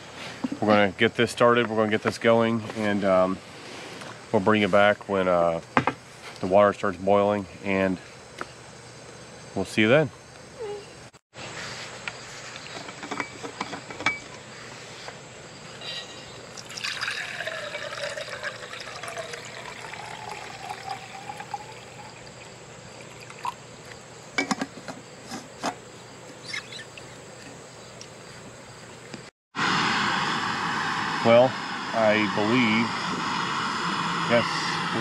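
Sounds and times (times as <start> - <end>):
water pouring into container: 16.5 - 23.6.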